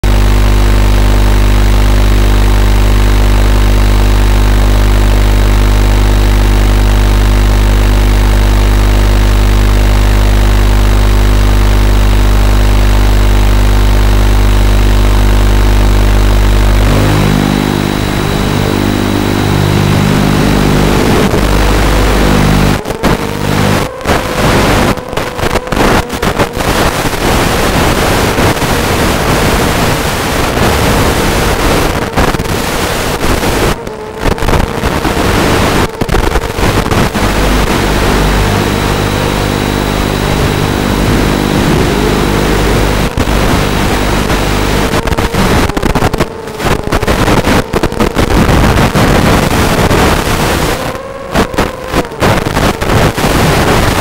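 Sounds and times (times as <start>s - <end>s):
wavering motor tone: 0.3s - 48.1s
quadcopter motors buzzing: 14.3s - 48.1s
rushing air noise: 15.4s - 25.0s, 35.0s - 45.5s.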